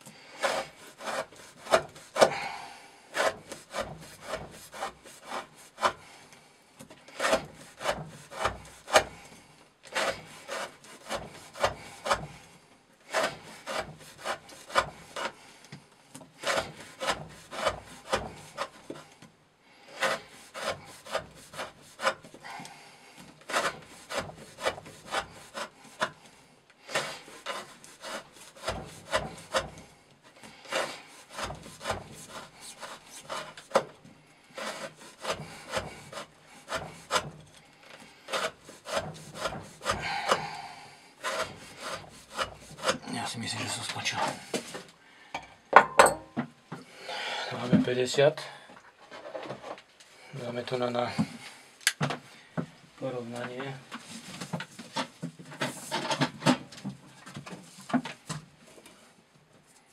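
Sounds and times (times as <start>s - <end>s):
knife shaving wooden stick: 0.0s - 44.9s.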